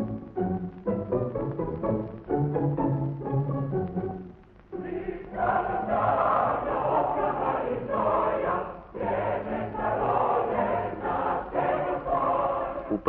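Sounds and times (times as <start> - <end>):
choir singing: 4.7 - 13.0.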